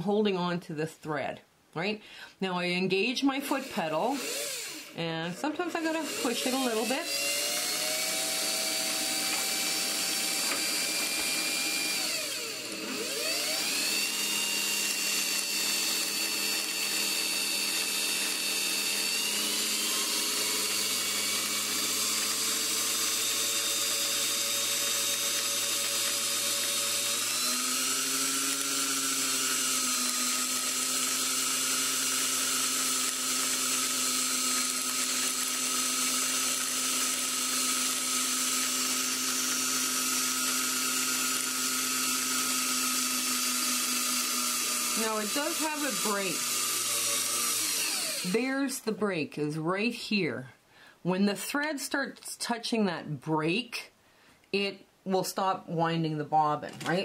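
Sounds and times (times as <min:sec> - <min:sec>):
sewing machine motor whine: 0:04.1 - 0:04.9, 0:06.0 - 0:48.3.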